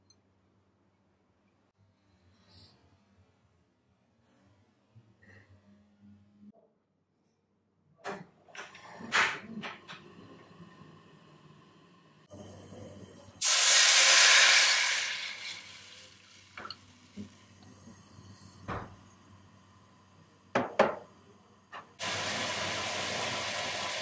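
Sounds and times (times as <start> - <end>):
water boiling: 10.5 - 18.1, 22.0 - 24.0
loud hiss from frying pan: 13.4 - 16.5, 22.0 - 24.0.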